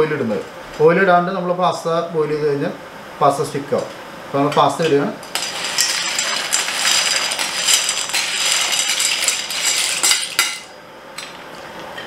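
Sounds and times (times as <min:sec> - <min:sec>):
dry pasta rattling into a pot: 0:05.3 - 0:10.7.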